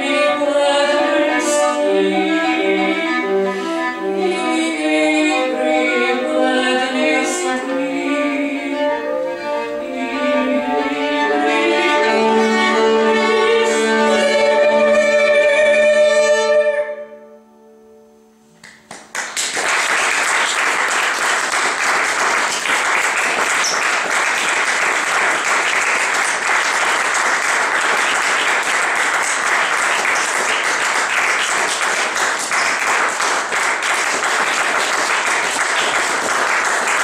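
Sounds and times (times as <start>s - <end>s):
audience applauding: 18.6s - 37.0s.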